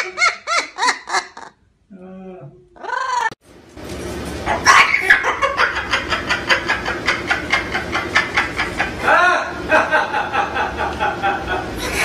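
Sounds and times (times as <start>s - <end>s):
cockatoo laughing: 0.0s - 1.6s, 4.6s - 12.0s.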